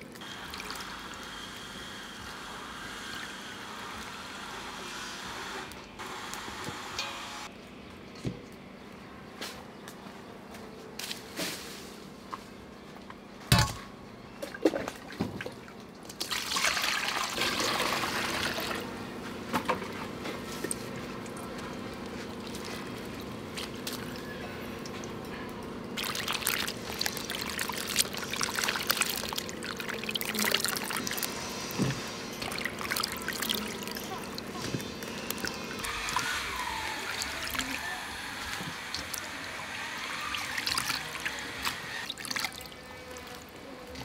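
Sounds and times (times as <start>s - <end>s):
water splashing in steel bowl: 26.0s - 31.4s, 32.3s - 37.8s, 38.4s - 42.8s.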